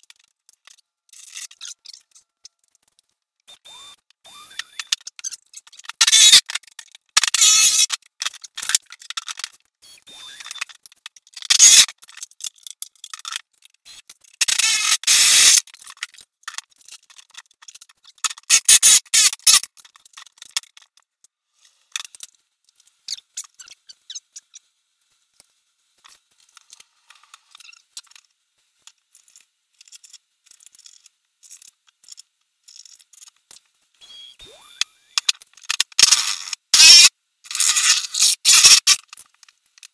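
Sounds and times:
handling clicks and scrapes: 0.0 - 9.7, 10.3 - 33.8, 35.2 - 39.9
cordless drill boring into plastic: 36.0 - 39.0.

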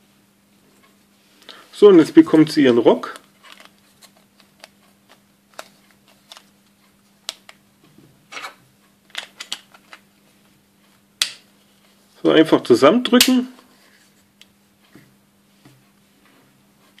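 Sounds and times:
plastic parts clicking: 9.1 - 10.0.

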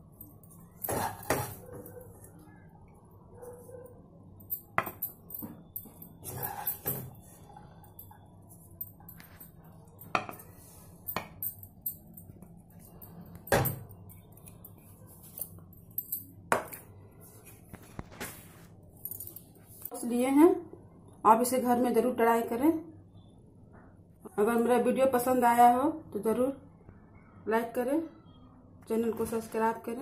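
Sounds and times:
wooden spatula scraping and knocking: 0.9 - 1.8.

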